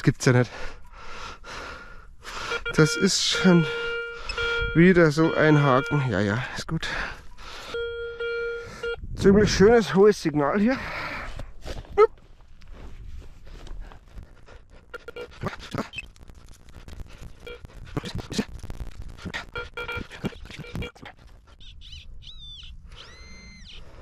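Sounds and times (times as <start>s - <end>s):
metal detector chirping tones: 2.4s - 6.2s, 7.7s - 9.0s, 21.6s - 23.8s.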